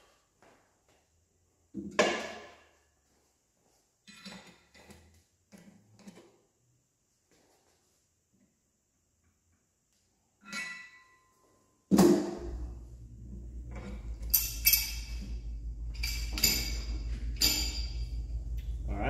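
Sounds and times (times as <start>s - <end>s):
wrench clinking on steel: 10.4s - 11.3s, 14.2s - 18.3s
steady low hum: 12.2s - 19.0s.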